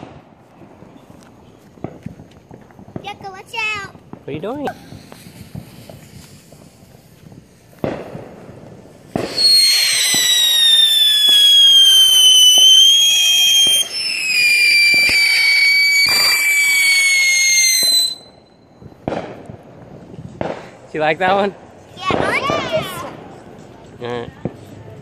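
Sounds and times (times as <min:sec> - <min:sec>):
firework shrill whistle: 0:09.2 - 0:19.0.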